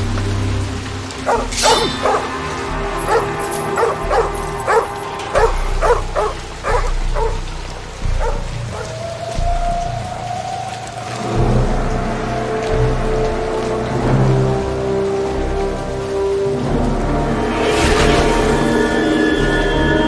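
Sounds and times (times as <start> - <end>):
dog barking: 1.3 - 2.3, 3.0 - 7.4, 8.2 - 8.9.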